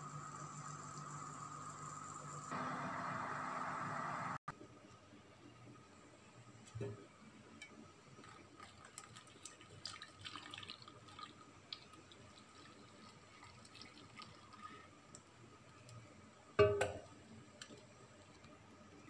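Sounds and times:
hot drink trickling through strainer: 0:08.1 - 0:15.2.

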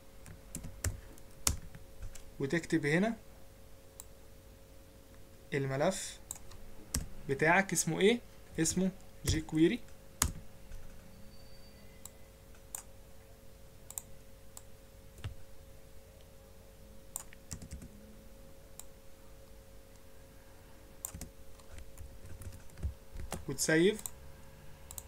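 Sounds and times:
faint steady hum: 0:00.0 - 0:25.0
keyboard and mouse clicks: 0:13.9 - 0:15.4, 0:17.1 - 0:17.9, 0:21.0 - 0:24.2.

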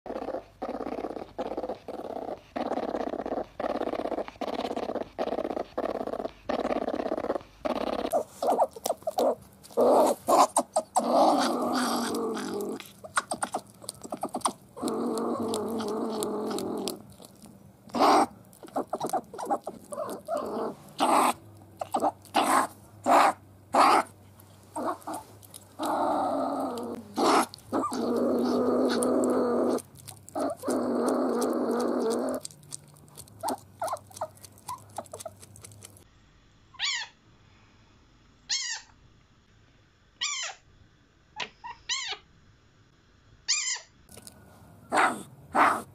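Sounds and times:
animal clicking chatters: 0:08.1 - 0:22.7, 0:24.8 - 0:36.0
animal harsh growls: 0:09.2 - 0:17.1, 0:24.8 - 0:32.5.

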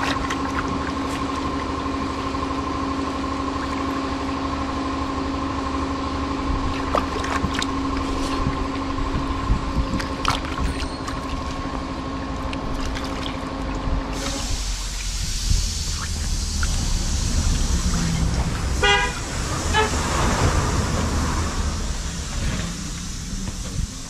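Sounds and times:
small splashes: 0:00.0 - 0:02.4, 0:06.6 - 0:09.0, 0:09.8 - 0:18.6
water sloshing and dripping: 0:00.0 - 0:04.8, 0:06.6 - 0:21.8
steady motor hum: 0:00.0 - 0:24.0.

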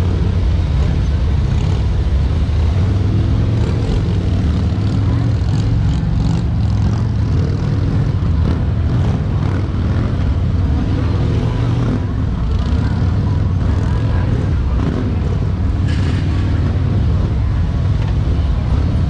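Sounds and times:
motorcycle engines rumbling: 0:00.0 - 0:19.0.

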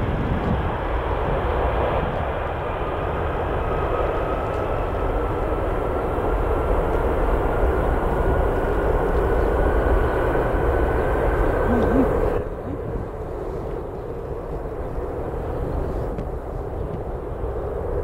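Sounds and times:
jet engines at take-off power: 0:00.0 - 0:18.0.

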